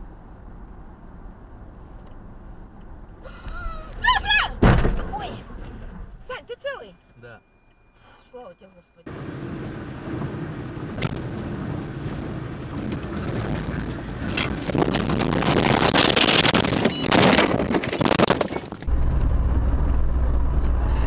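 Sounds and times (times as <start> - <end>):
car road noise: 0.0 - 21.0
low engine drone: 18.8 - 21.0.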